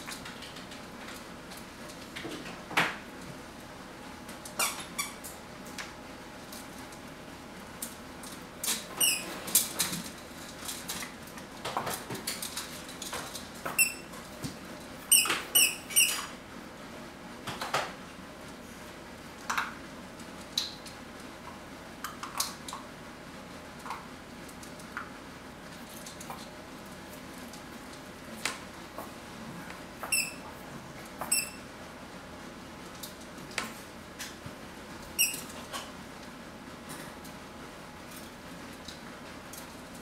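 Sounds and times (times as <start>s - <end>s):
puppies squeaking: 4.6s - 5.2s, 9.0s - 9.3s, 13.8s - 14.1s, 15.1s - 16.2s, 30.1s - 30.4s, 31.3s - 31.6s, 35.2s - 35.5s.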